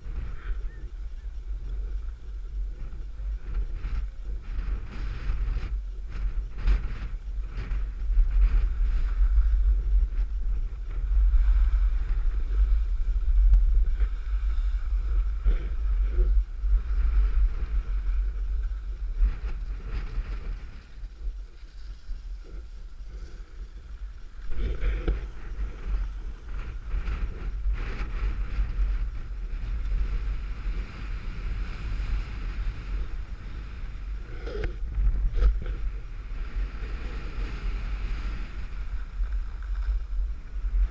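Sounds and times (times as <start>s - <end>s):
wind noise on microphone: 0.0s - 40.9s
skis scraping packed snow: 1.5s - 40.9s.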